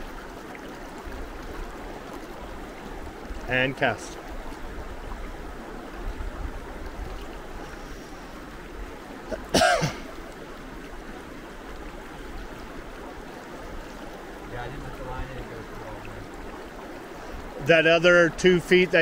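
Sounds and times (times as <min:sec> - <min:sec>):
river water rushing: 0:00.0 - 0:19.0
person clearing throat: 0:09.3 - 0:10.1.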